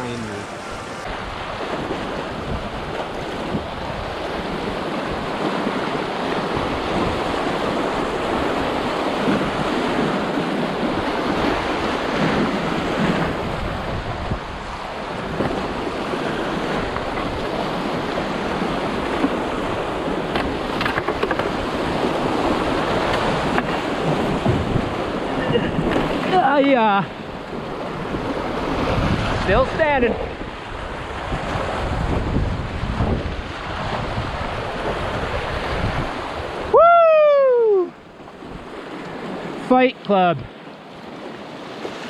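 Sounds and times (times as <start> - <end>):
rushing whitewater creek: 0.0 - 20.9, 21.6 - 32.0.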